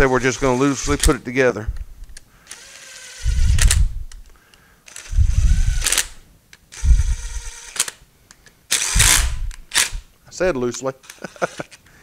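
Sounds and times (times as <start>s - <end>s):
cordless driver running bolts: 0.1s - 1.2s, 2.5s - 4.0s, 4.9s - 8.0s, 8.7s - 10.0s.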